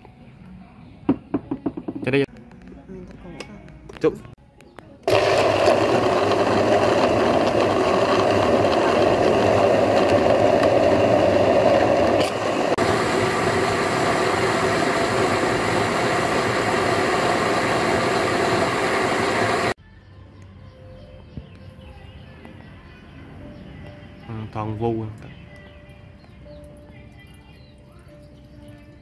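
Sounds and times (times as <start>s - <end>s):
blender chopping fruit: 5.0s - 19.8s.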